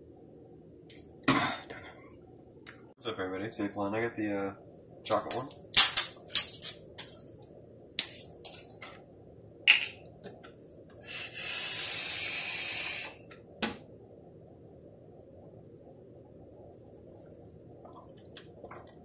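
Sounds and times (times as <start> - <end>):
steady hiss: 10.8 - 13.5.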